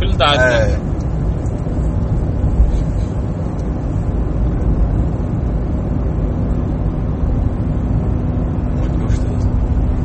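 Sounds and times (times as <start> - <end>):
in-car driving noise: 0.0 - 10.0.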